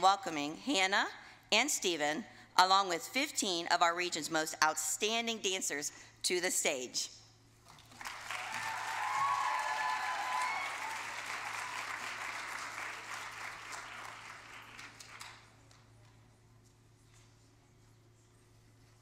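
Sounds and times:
audience applauding: 7.8 - 15.5.

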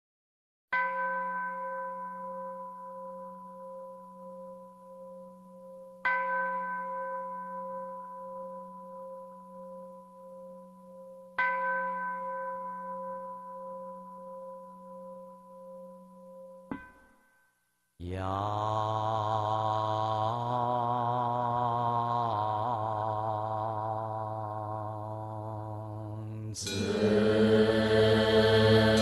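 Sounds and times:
bowl bell ringing: 0.8 - 17.4, 26.6 - 27.5.

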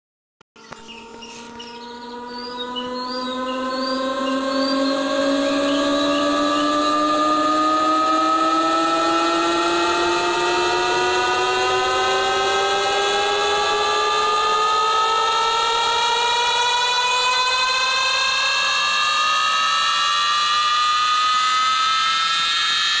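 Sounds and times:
buzzy electronic riser tone: 0.6 - 23.0.

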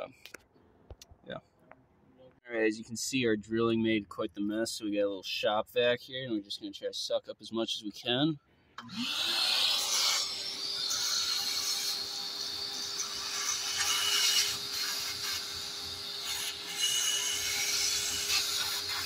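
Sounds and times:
shop vacuum running: 8.8 - 16.7.

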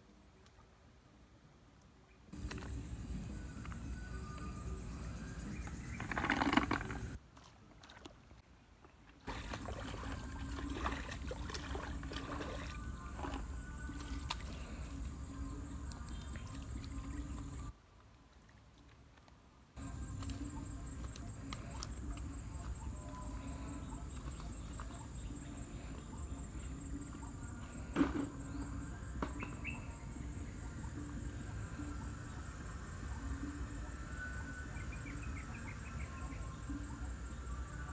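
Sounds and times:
insects chirring: 2.4 - 7.2, 19.8 - 37.9
water sloshing from wading: 5.8 - 17.7
small ticks and rustles: 15.8 - 22.8.

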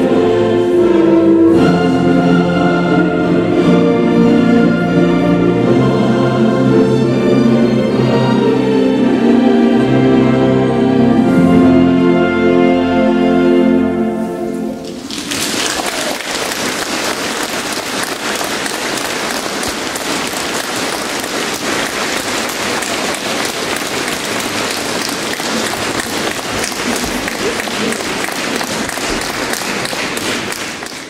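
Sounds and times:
choir and orchestra chord: 0.0 - 14.9
audience applauding: 14.8 - 31.0.

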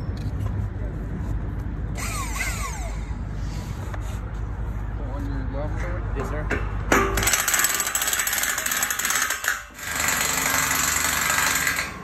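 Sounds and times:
impact wrench rattling: 6.9 - 12.0.

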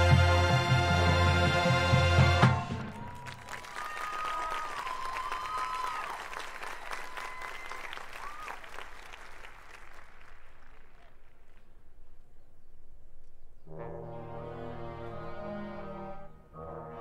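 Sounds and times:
stadium crowd applauding and cheering: 1.3 - 11.9.

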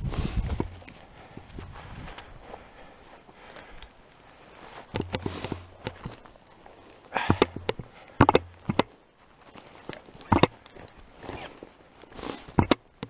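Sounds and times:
footsteps on frozen grass: 0.0 - 12.5
clothing rustling: 9.1 - 12.5.

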